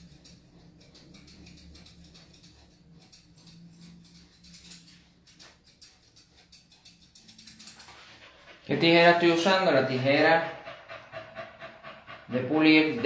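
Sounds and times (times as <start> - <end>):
scissors snipping hair: 0.0 - 8.2.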